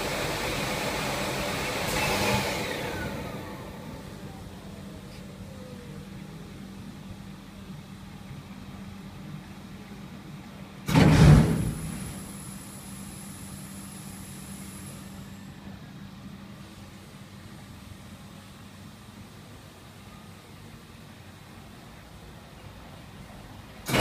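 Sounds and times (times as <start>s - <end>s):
loud blast of air and water: 0.0s - 3.8s, 10.9s - 15.3s
cleaning machine humming: 0.0s - 5.1s.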